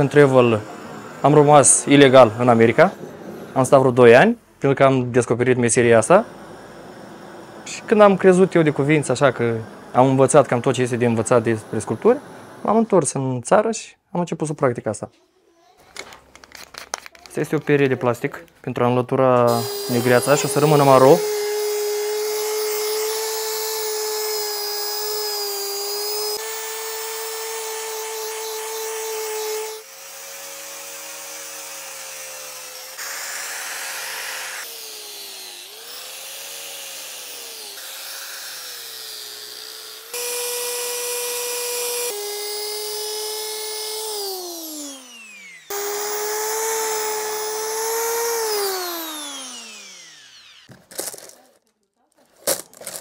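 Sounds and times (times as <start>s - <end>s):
drill spinning a brush on wood: 0.0s - 4.0s, 5.8s - 13.0s, 19.5s - 51.2s
angle grinder sanding: 0.0s - 4.4s, 5.7s - 13.0s, 19.5s - 50.8s.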